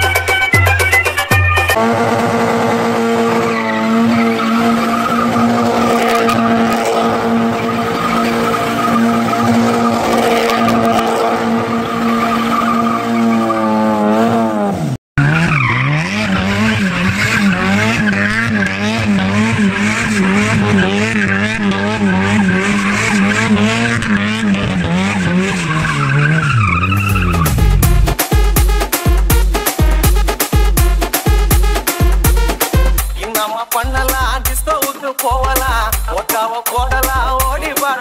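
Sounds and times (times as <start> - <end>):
car engine revving: 1.8 - 33.1
tyres screeching on paving: 3.1 - 13.8, 15.3 - 27.6.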